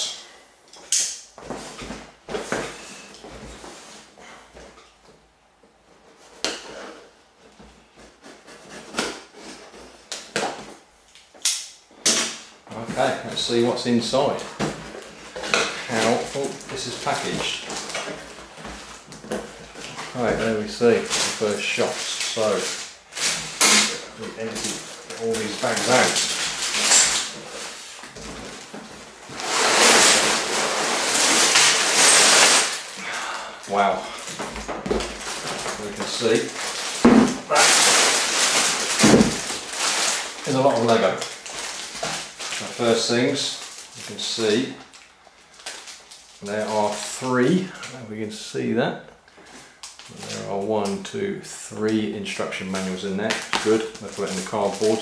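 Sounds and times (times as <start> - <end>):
plastic bags crinkling: 12.2 - 48.0, 49.4 - 51.1, 51.8 - 55.0
tape ripping: 14.2 - 33.0, 33.7 - 47.0
cardboard scraping: 14.3 - 33.0.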